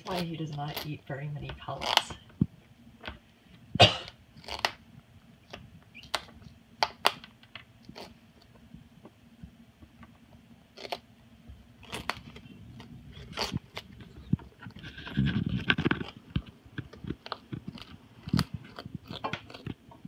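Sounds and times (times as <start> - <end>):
bird beak crunching squash: 4.1 - 4.8, 5.4 - 8.5, 10.7 - 11.1, 11.7 - 20.0.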